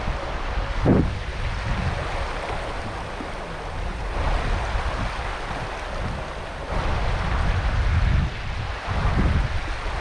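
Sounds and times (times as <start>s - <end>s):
river running over stones: 0.0s - 7.9s
wind rumbling on microphone: 0.0s - 10.0s.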